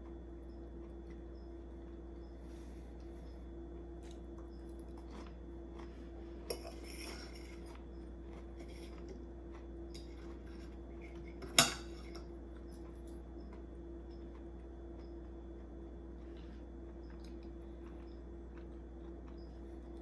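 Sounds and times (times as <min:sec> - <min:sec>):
steady low hum: 0:00.0 - 0:20.0
cutlery scraping on a plate: 0:06.5 - 0:07.8, 0:10.0 - 0:12.3.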